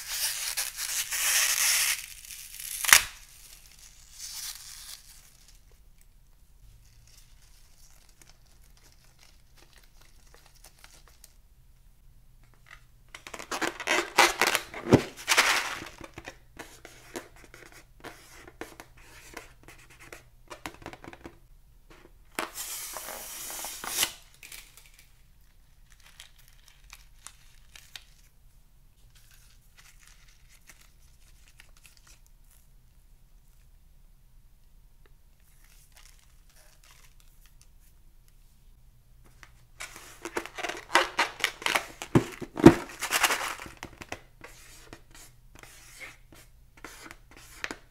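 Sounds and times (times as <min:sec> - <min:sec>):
crinkly tearing bursts: 0:00.0 - 0:05.6.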